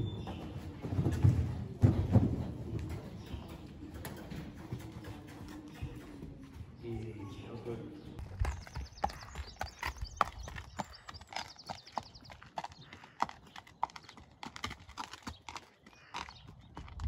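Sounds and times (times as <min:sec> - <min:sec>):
footsteps: 0:00.0 - 0:08.7
horse hooves on gravel: 0:00.0 - 0:17.0.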